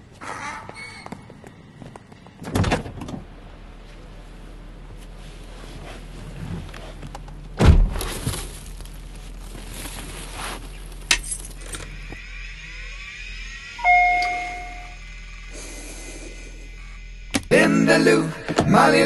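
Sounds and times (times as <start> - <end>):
two-tone dashboard chime: 13.8 - 15.0.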